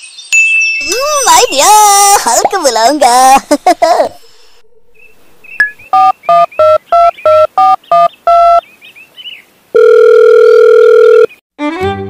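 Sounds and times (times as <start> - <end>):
phone keypad beeps: 5.6 - 8.6, 9.8 - 11.3
steady telephone tone: 9.8 - 11.4.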